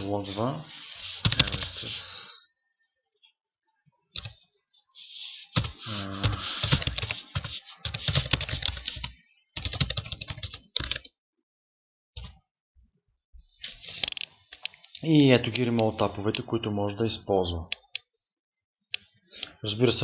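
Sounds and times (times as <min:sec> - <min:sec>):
typing on keyboard: 0:01.2 - 0:01.8, 0:05.6 - 0:11.1, 0:12.2 - 0:12.4.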